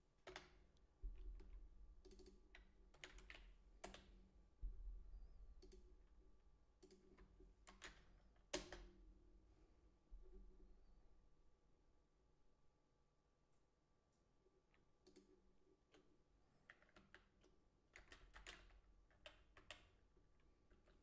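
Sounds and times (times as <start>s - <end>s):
faint keyboard typing: 0.2s - 4.3s, 5.5s - 6.2s, 6.8s - 9.0s, 14.4s - 21.0s.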